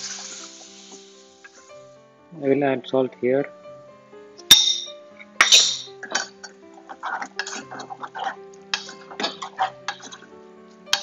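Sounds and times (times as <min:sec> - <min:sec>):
background music: 0:00.0 - 0:11.0
wooden spoon scraping metal pot: 0:05.2 - 0:11.0.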